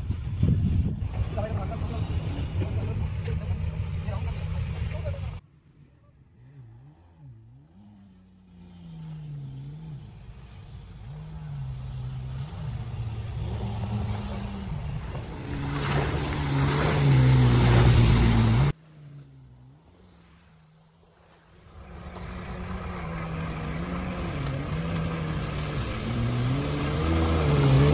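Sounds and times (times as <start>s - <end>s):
jet ski engine revving: 6.3s - 20.0s, 21.8s - 27.9s.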